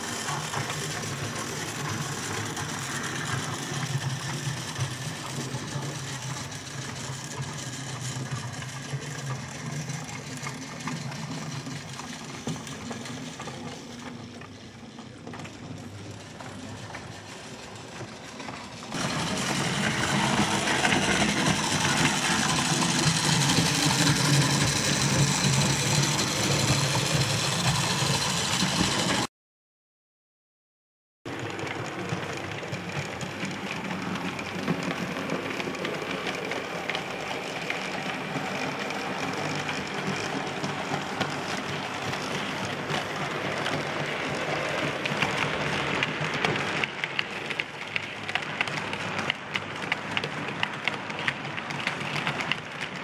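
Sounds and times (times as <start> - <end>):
model train motors humming: 0.0 - 29.3, 31.3 - 53.0
wheels rumbling on track: 0.0 - 29.3, 31.3 - 53.0.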